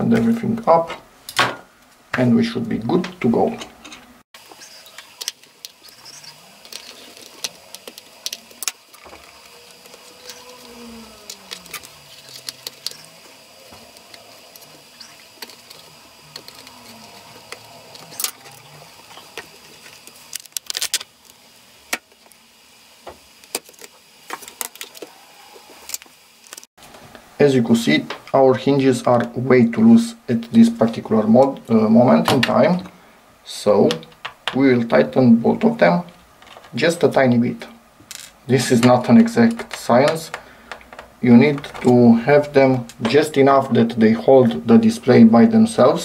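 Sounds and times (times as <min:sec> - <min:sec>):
hands handling plastic and metal: 0:03.6 - 0:22.4, 0:23.1 - 0:25.1.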